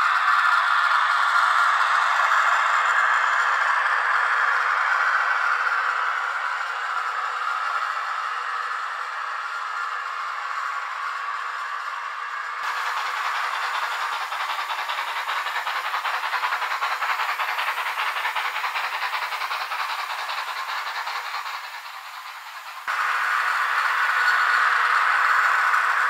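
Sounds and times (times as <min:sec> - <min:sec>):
model steam locomotive chuffing: 0:00.0 - 0:26.0
steam hiss: 0:00.0 - 0:26.0
loud steady noise: 0:12.6 - 0:26.0.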